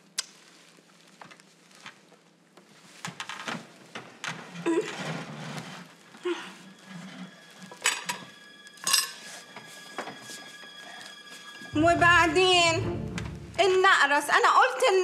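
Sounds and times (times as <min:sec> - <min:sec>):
cutlery and plates clinking: 0:07.6 - 0:10.4.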